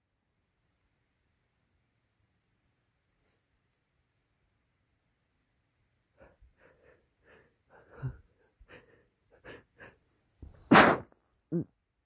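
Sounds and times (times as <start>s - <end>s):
person catching breaths: 6.2s - 11.0s
person sneezing: 10.4s - 11.7s.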